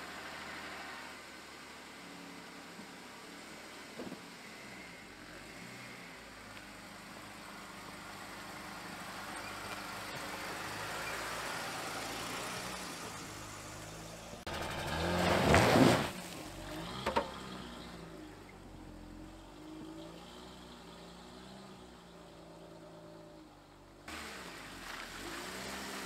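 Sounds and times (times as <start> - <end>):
tyres rolling over leaves: 8.4 - 20.0, 24.1 - 26.0.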